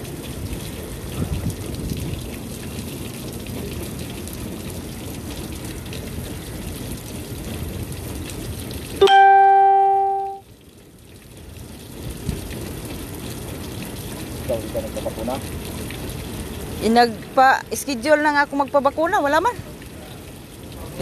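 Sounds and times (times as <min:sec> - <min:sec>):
loud single-pitched tone: 0:09.0 - 0:10.4.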